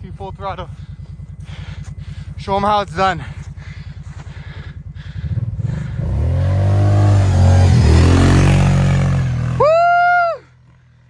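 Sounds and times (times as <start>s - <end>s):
atv engine passing by: 5.1s - 11.0s
person crying out: 9.6s - 10.4s.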